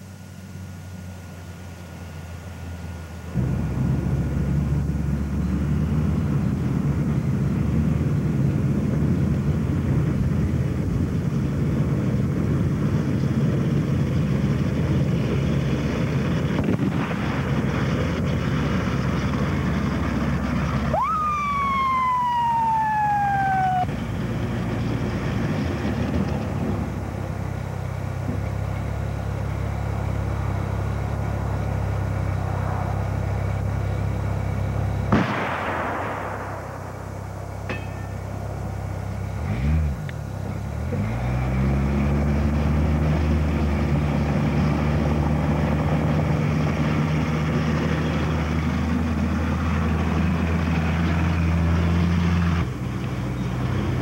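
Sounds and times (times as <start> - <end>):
tracked vehicle engine running: 0.0 - 54.0
police siren wail: 20.9 - 24.2.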